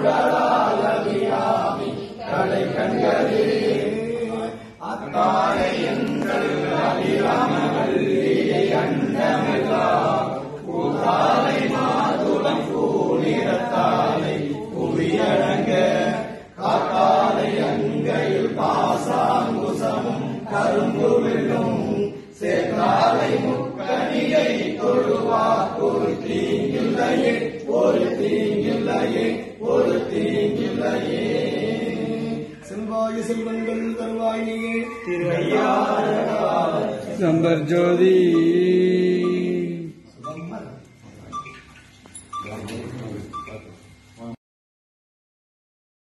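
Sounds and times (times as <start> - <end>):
men chanting together: 0.0 - 40.0.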